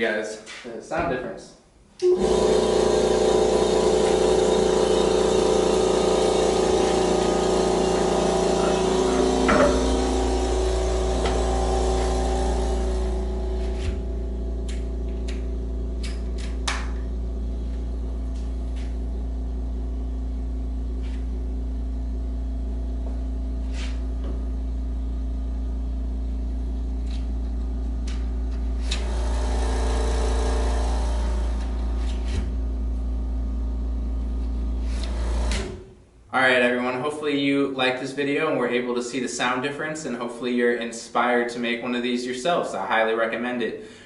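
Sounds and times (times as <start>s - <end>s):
air compressor humming: 1.9s - 36.3s.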